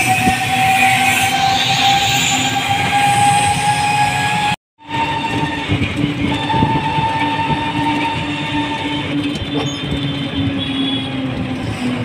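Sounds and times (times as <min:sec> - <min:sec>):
rickshaw engine droning: 0:00.0 - 0:12.0
road noise: 0:05.0 - 0:12.0.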